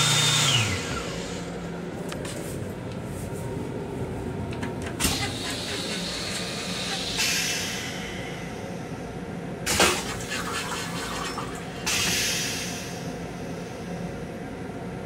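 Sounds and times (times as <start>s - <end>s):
toilet flushing: 5.0s - 7.8s, 9.7s - 13.1s.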